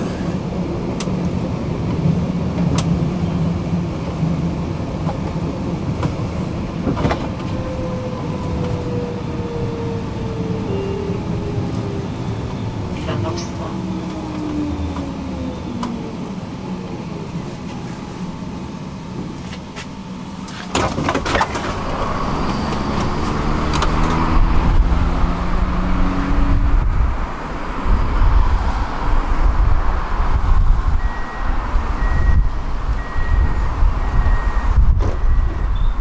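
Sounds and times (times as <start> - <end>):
tram motor whine: 0.0 - 36.0.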